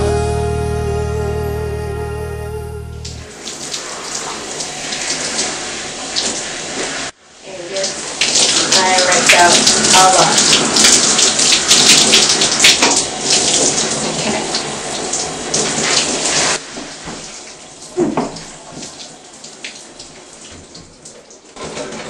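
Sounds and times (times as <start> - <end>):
shower spraying onto hair: 3.4 - 20.8.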